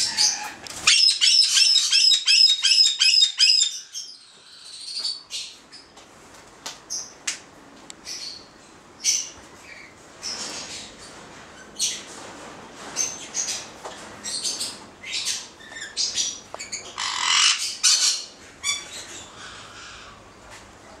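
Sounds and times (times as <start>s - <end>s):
parrots squawking and whistling: 0.0s - 5.0s, 16.7s - 20.2s.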